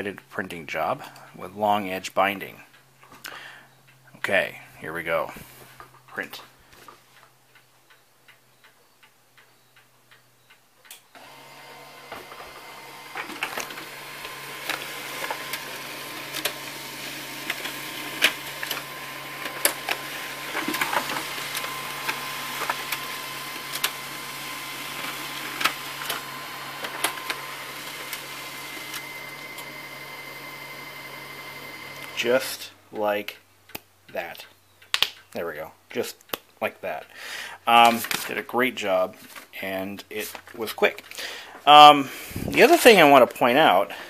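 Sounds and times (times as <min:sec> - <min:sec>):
printer mechanical hum: 0:11.1 - 0:32.6
printer paper feed clicks: 0:11.2 - 0:32.2, 0:37.8 - 0:38.3.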